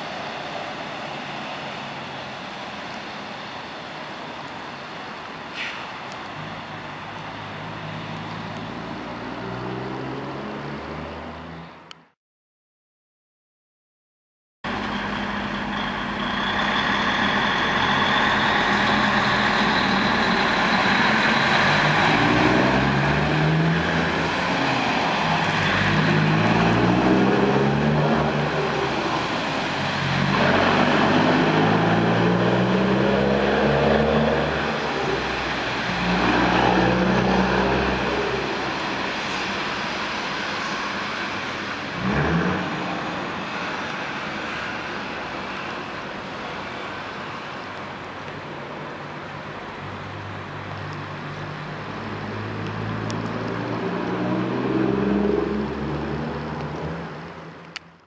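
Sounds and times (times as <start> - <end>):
truck diesel engine accelerating: 6.4 - 12.0, 14.7 - 45.6, 49.4 - 57.8.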